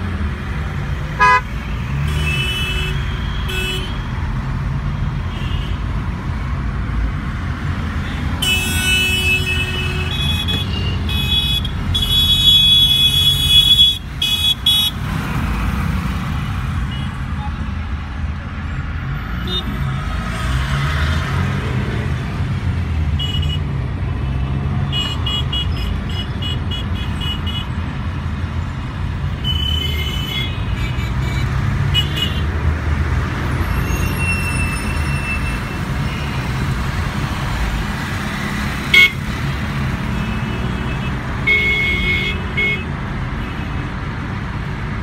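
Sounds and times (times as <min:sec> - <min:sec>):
car engine and tyres rumbling: 0:00.0 - 0:45.0
vehicle horns honking: 0:01.1 - 0:04.1, 0:05.3 - 0:05.8, 0:08.0 - 0:15.0, 0:23.2 - 0:23.7, 0:24.3 - 0:27.8, 0:29.4 - 0:32.5, 0:38.9 - 0:39.3, 0:40.1 - 0:43.9.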